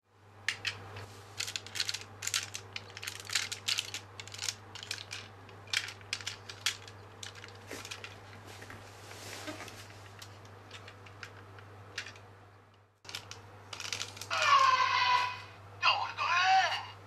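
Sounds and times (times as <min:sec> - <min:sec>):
steady low hum: 0:00.1 - 0:17.0
plastic toy parts clicking: 0:00.5 - 0:00.8, 0:01.4 - 0:08.2, 0:10.7 - 0:12.3, 0:13.1 - 0:14.3.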